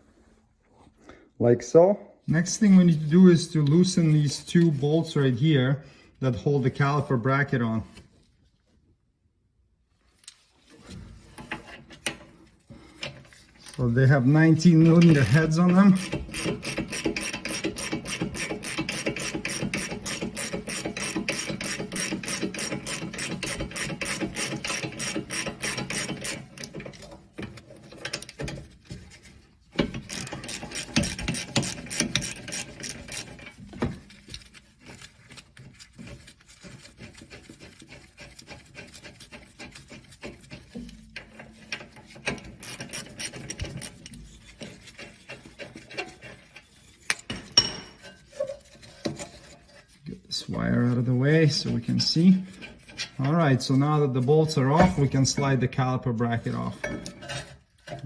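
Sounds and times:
hand ratchet clicking: 0:15.0 - 0:27.0, 0:29.8 - 0:33.6, 0:41.2 - 0:46.2.

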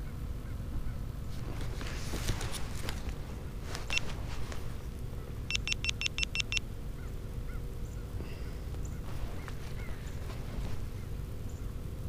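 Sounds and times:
low steady rumble: 0:00.0 - 0:12.0
electronic beeps: 0:05.5 - 0:06.6.

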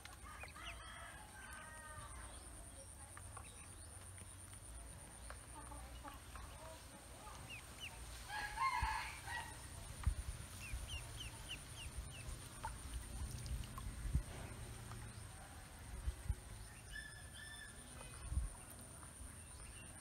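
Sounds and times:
ducklings peeping: 0:03.1 - 0:08.2, 0:09.8 - 0:15.1.

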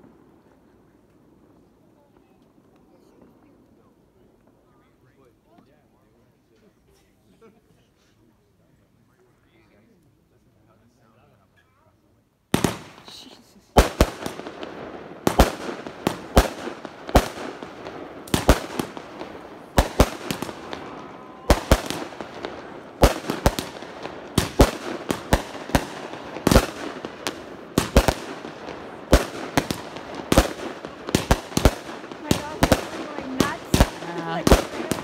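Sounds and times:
fireworks bangs: 0:12.5 - 0:35.0.

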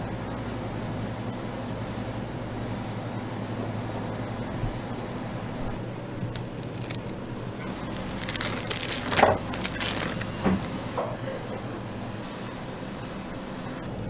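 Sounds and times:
steady low hum: 0:00.0 - 0:14.0
packaging crinkling and rustling: 0:06.2 - 0:10.9.

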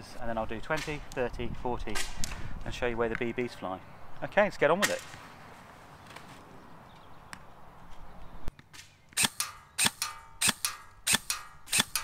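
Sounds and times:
airsoft rifle shots: 0:09.2 - 0:12.0.

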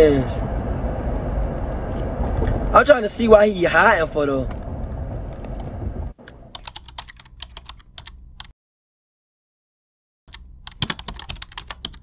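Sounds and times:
keyboard key clicks: 0:10.3 - 0:12.0.

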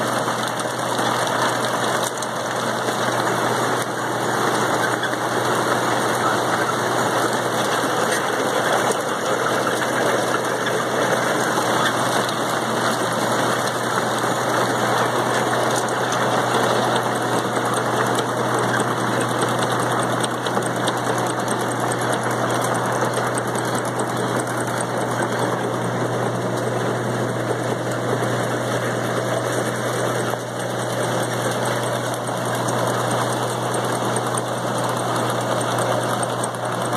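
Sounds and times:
harvester machinery running: 0:00.0 - 0:36.9.

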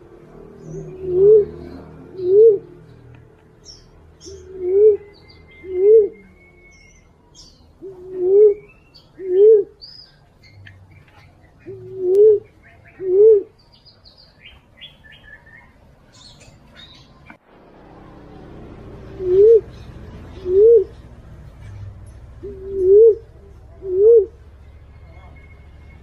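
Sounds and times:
dove cooing: 0:00.0 - 0:03.1, 0:04.2 - 0:06.6, 0:07.8 - 0:09.8, 0:11.6 - 0:13.6, 0:18.3 - 0:21.2, 0:22.3 - 0:24.6
small birds chirping: 0:00.0 - 0:17.4, 0:18.1 - 0:26.0.

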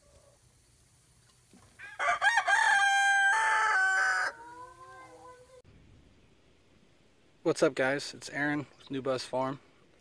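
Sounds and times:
rooster crowing: 0:01.8 - 0:05.5.

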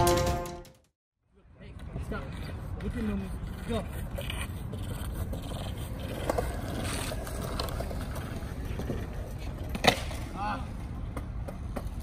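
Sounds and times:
skateboard wheels rolling on concrete: 0:01.5 - 0:12.0
skateboard clack: 0:02.8 - 0:12.0.

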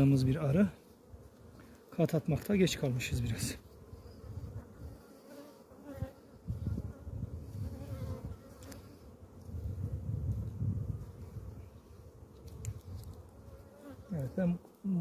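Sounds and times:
honeybees buzzing: 0:00.0 - 0:15.0
low rumbles on microphone: 0:09.5 - 0:11.6.

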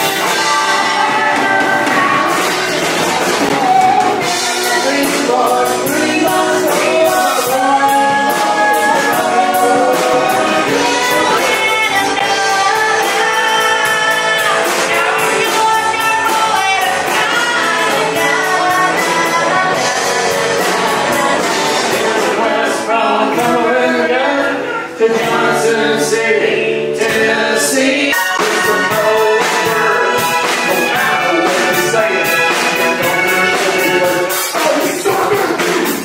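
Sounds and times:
drum beat: 0:00.0 - 0:23.7, 0:27.0 - 0:36.0
woman singing: 0:00.0 - 0:26.3
live band playing: 0:00.0 - 0:36.0.

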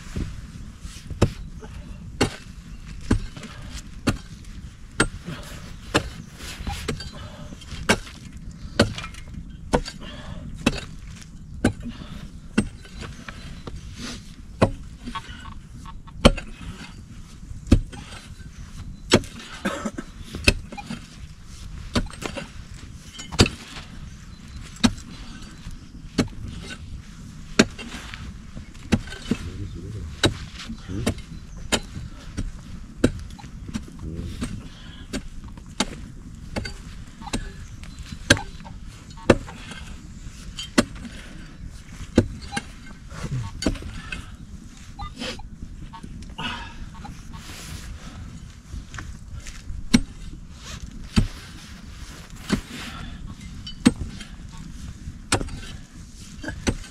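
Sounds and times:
digging tool striking hard earth: 0:42.2 - 0:44.2, 0:49.9 - 0:50.2, 0:55.3 - 0:55.7.

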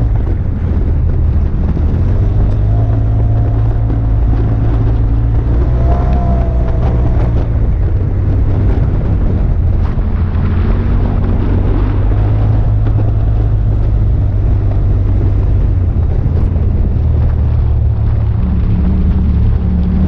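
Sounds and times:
tyres on gravel road: 0:00.0 - 0:20.0
utility vehicle engine running: 0:00.0 - 0:20.0.

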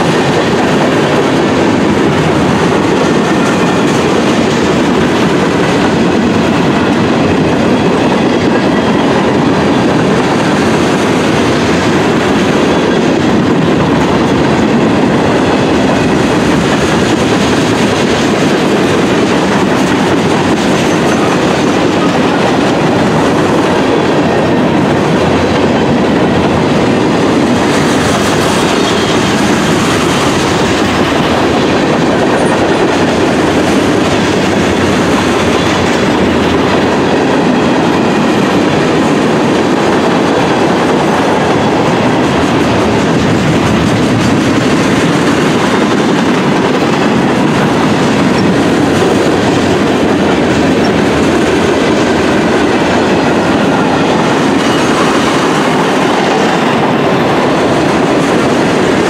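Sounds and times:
train wheels rolling on rails: 0:00.0 - 0:59.0.

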